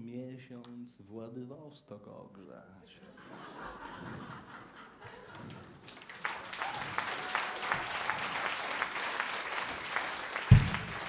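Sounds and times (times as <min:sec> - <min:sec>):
audience applauding: 0:05.1 - 0:11.0
heavy thump: 0:10.5 - 0:11.0.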